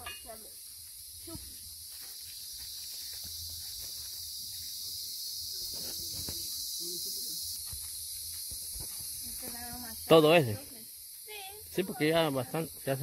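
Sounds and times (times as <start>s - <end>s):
high-pitched hiss: 0.0s - 13.0s.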